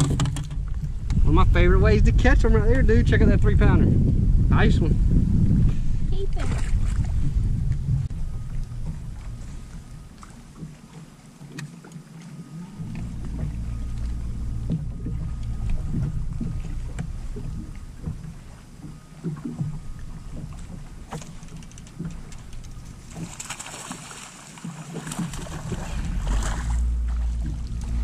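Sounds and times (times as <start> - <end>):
water lapping at boat hull: 0.0 - 2.2, 5.0 - 28.0
wind rumble on microphone: 0.0 - 11.7, 12.4 - 24.3, 24.9 - 28.0
fish splashing at surface: 21.1 - 28.0.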